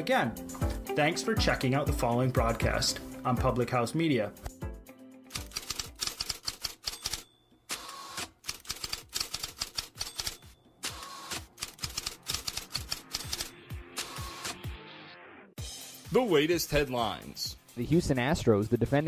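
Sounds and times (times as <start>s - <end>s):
typewriter keys clacking: 5.4s - 7.3s, 8.5s - 10.6s, 11.6s - 13.5s.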